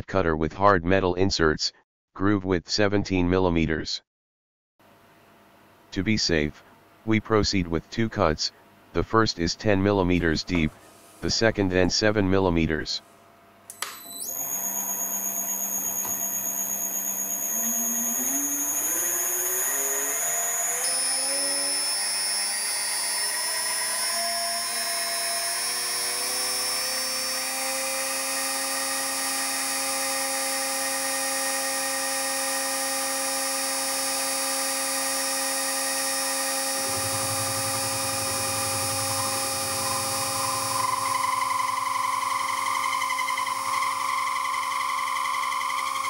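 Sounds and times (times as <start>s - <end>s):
milling machine spindle whining: 14.0s - 46.0s.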